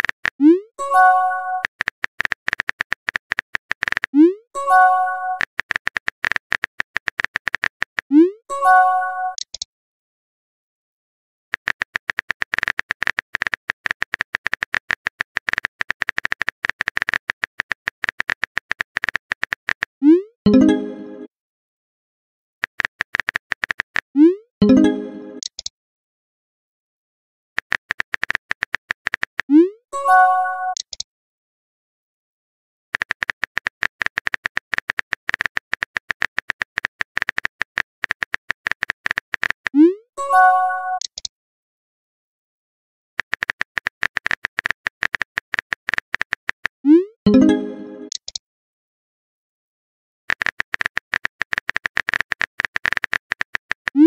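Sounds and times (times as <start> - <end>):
typing clicks: 1.5 - 4.3, 5.2 - 8.2, 9.3 - 9.7, 11.5 - 20.0, 22.6 - 24.1, 25.4 - 25.7, 27.6 - 29.5, 30.7 - 31.0, 33.0 - 39.8, 40.9 - 41.3, 43.2 - 46.8, 47.8 - 48.4, 50.3 - 54.0.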